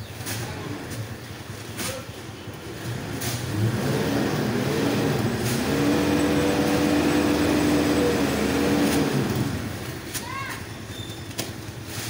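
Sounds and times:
forklift engine revving: 0:02.6 - 0:10.0.

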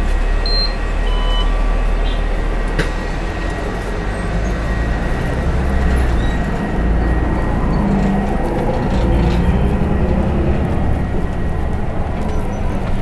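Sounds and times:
bus engine rumble: 0:00.0 - 0:13.0
short high beeps: 0:00.4 - 0:01.5.

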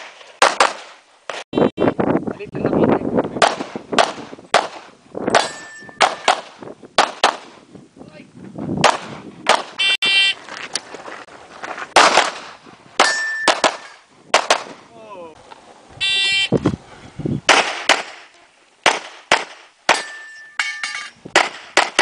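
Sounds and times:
handgun shots: 0:03.4 - 0:07.5, 0:12.0 - 0:14.7
steel targets ringing: 0:05.4 - 0:06.3, 0:13.0 - 0:14.1, 0:19.9 - 0:21.2.

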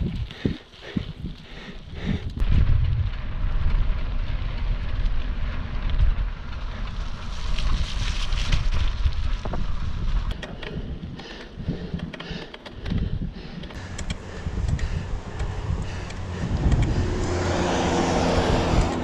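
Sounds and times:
bike tyres rolling on dirt: 0:00.0 - 0:19.0
wind buffeting microphone: 0:00.0 - 0:19.0
bike rattles and knocks: 0:02.6 - 0:17.1.

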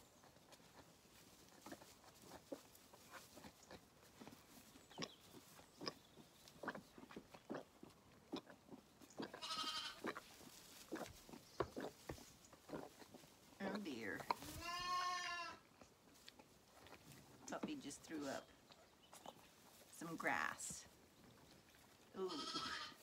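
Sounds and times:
lamb sucking at bottle: 0:00.1 - 0:20.0, 0:21.1 - 0:22.9
mouth clicks on teat: 0:00.2 - 0:10.2, 0:10.8 - 0:14.5
lamb bleating: 0:09.3 - 0:10.1, 0:14.5 - 0:15.6, 0:22.2 - 0:23.0.

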